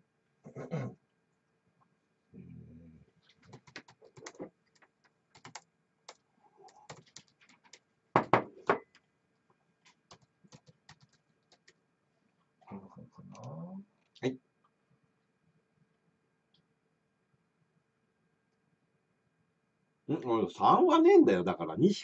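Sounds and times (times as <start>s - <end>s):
laptop keyboard typing: 3.2s - 8.3s, 9.9s - 11.8s
taps and knocks: 8.2s - 9.0s.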